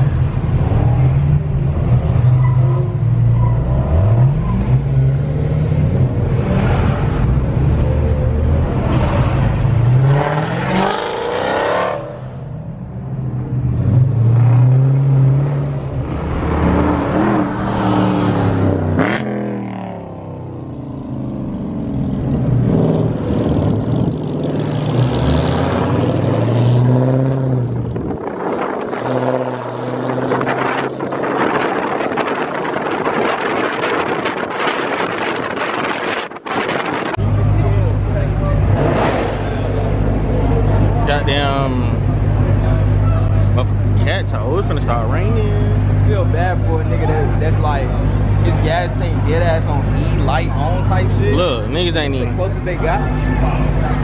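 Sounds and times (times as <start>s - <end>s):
car engines revving: 0.0s - 54.0s.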